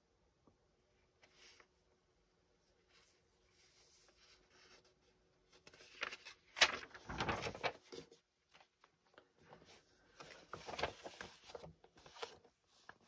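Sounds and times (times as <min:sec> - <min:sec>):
magazine pages rustling: 0:02.9 - 0:13.0.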